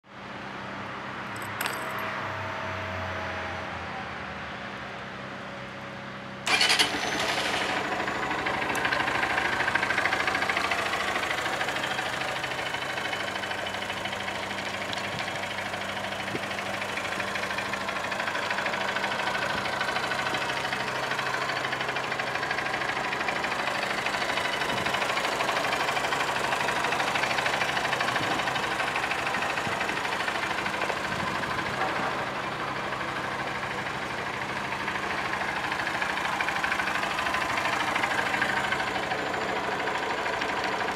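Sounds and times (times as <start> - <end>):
motorcycle engine starting: 6.4 - 33.8, 34.6 - 40.9
motorcycle engine idling: 6.5 - 40.9.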